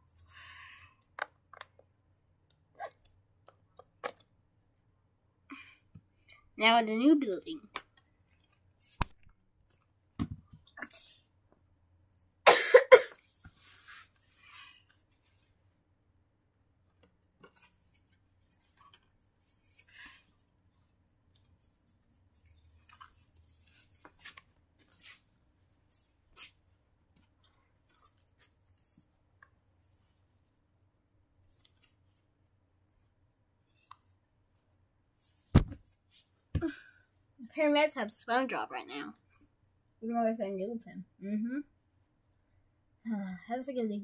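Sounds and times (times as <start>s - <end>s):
person coughing: 12.5s - 13.2s
plush toys rustling and tapping: 35.3s - 36.7s.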